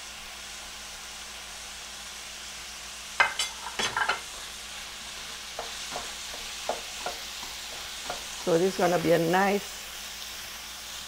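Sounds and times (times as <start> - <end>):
meat sizzling in a pan: 0.0 - 11.0
wooden spoon scraping a pan: 3.2 - 10.5.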